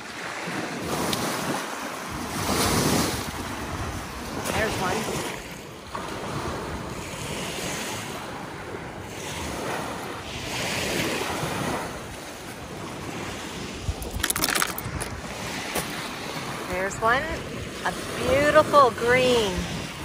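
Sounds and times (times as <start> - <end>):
waves on stony beach: 0.0 - 20.0
wind buffeting microphone: 6.0 - 20.0.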